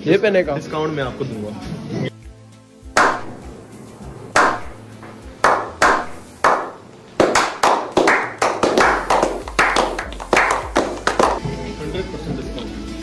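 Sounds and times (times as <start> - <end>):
people clapping: 5.4 - 11.4.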